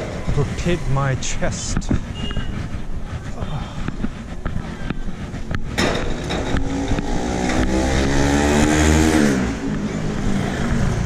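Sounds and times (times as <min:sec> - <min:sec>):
motorcycle passing by: 0:06.5 - 0:11.0.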